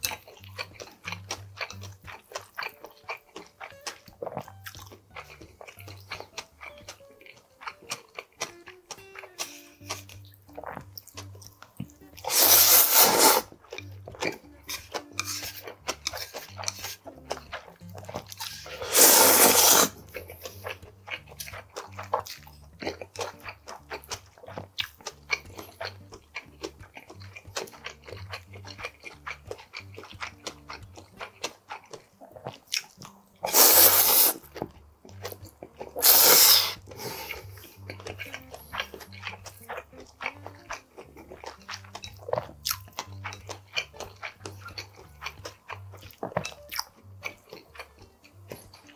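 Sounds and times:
wet chewing and mouth clicks: 0.0 - 48.9
loud noodle slurps: 12.2 - 13.5, 18.4 - 20.0, 33.4 - 34.5, 36.0 - 37.4.

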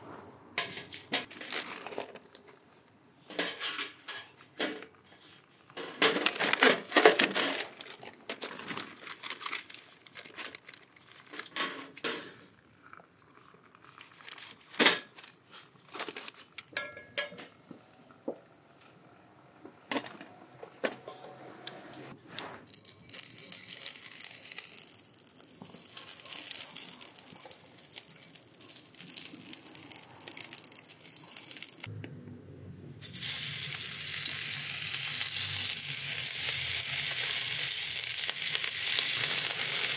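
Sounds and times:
newspaper crinkling: 1.3 - 2.8, 6.1 - 11.6, 13.9 - 16.6, 22.6 - 31.9
metal tray and tools set down: 3.3 - 4.9
pork slices sizzling: 22.7 - 31.9, 33.0 - 39.9
oil sizzling on hot griddle: 22.8 - 31.9, 33.0 - 39.9.

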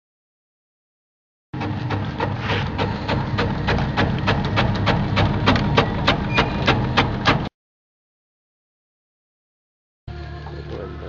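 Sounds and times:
slicing machine motor hum: 1.6 - 7.5.

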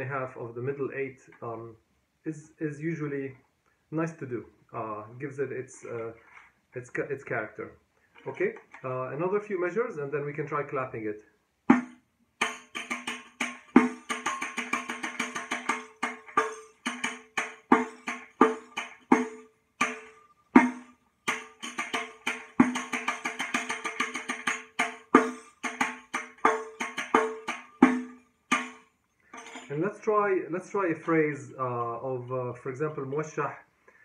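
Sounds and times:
frame tambourine drumming: 11.7 - 28.8.

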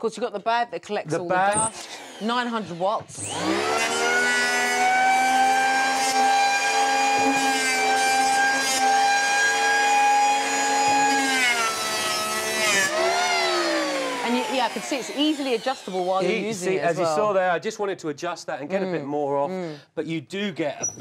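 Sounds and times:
electric planer whining: 1.5 - 16.7.

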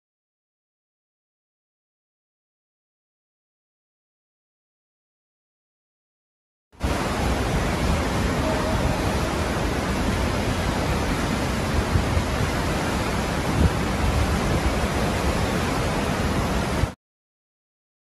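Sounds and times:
wind buffeting microphone: 6.8 - 16.9
hurricane wind roaring: 6.8 - 17.0
rushing floodwater: 6.8 - 17.0.

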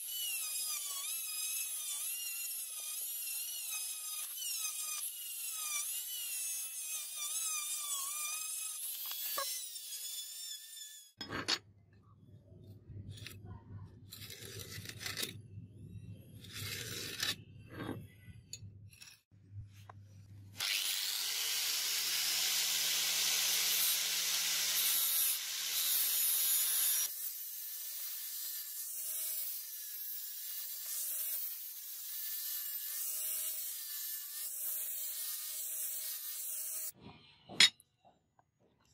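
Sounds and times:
electric drill sanding steel: 0.0 - 11.2, 20.6 - 37.0
blade scraping on wooden board: 16.4 - 18.1.

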